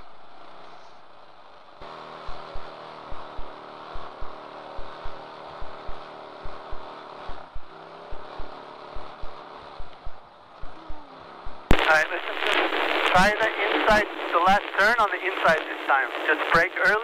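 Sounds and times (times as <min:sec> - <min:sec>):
kart engine running: 0:01.8 - 0:11.7.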